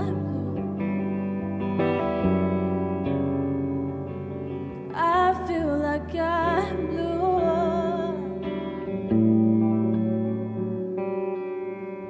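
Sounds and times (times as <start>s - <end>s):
woman singing: 0.0s - 1.5s, 4.8s - 9.0s
electric guitar chords: 0.0s - 12.0s.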